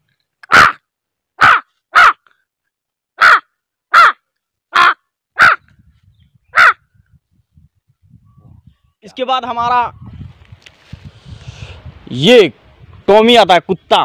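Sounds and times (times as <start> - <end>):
man imitating crow caws: 0.4 - 0.8, 1.4 - 2.2, 3.2 - 5.6, 6.6 - 6.8.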